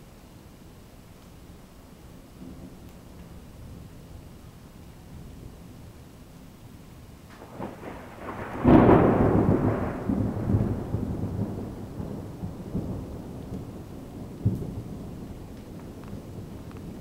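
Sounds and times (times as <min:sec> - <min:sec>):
faint crackle: 0:00.2 - 0:10.9, 0:13.0 - 0:17.0
thunder clap and rumble: 0:07.3 - 0:17.0.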